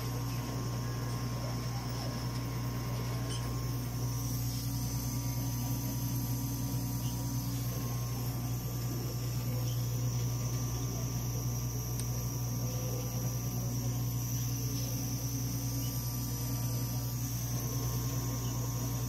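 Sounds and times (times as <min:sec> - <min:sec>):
faint high whine: 0:00.0 - 0:19.0
low machine hum: 0:00.0 - 0:19.0.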